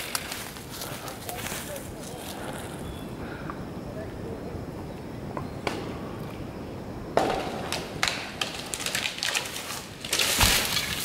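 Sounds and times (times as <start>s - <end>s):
wood and branches snapping: 0.0s - 1.6s, 7.2s - 11.0s
falling tree cracking: 7.2s - 11.0s.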